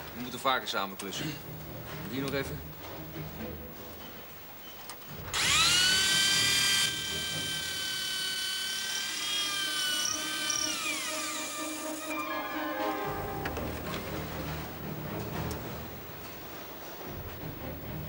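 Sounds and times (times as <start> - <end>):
electric drill whining: 5.3 - 12.3.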